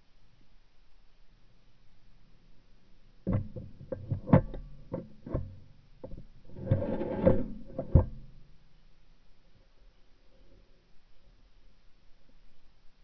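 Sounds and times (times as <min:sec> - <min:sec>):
short rustling scrape: 0:06.4 - 0:08.3.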